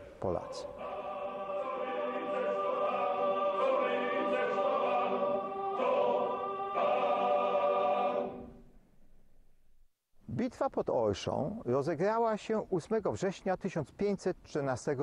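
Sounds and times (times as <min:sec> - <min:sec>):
choir singing sustained chords: 0:00.0 - 0:08.8.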